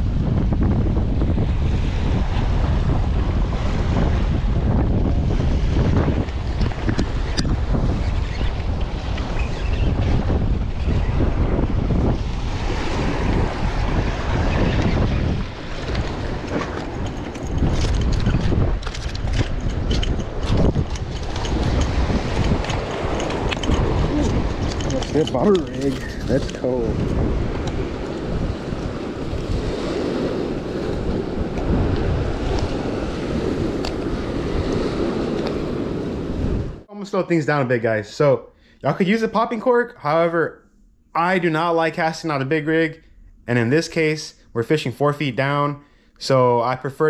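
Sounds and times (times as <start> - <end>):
wind buffeting microphone: 0.0 - 36.9
surf washing against rocks: 11.2 - 36.9.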